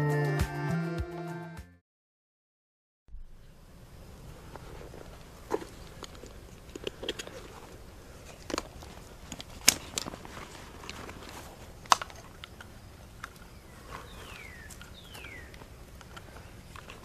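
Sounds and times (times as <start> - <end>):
handling clicks and knocks: 4.8 - 17.0.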